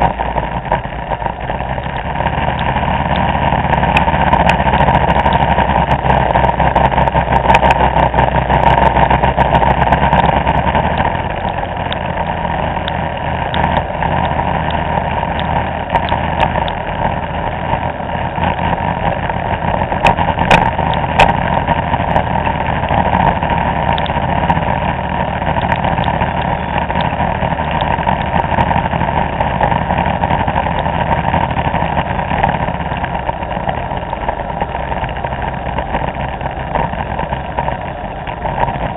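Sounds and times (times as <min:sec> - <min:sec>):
road noise: 0:00.0 - 0:38.9
scooter engine running: 0:00.0 - 0:38.9.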